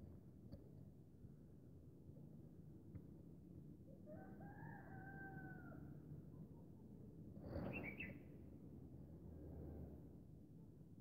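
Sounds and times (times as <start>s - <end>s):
distant rooster crowing: 4.1s - 5.9s.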